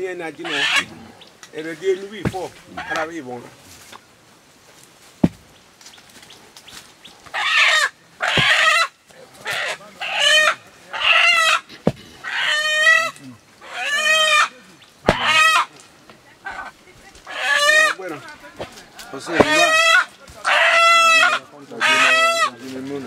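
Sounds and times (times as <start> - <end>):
bird calling: 0.0 - 3.4, 5.2 - 23.0
sharp knocks: 2.2 - 2.5, 5.2 - 5.5, 8.3 - 8.7, 11.8 - 12.1, 15.0 - 15.4.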